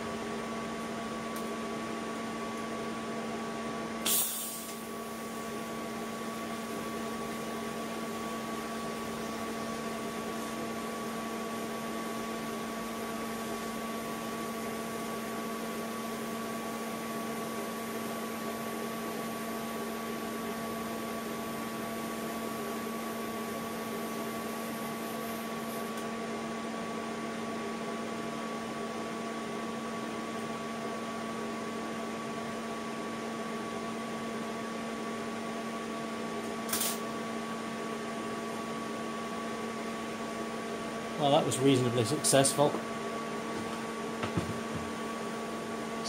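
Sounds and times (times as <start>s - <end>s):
welder electrical hum: 0.0s - 46.0s
welding arc hiss: 4.0s - 5.4s, 23.8s - 26.0s.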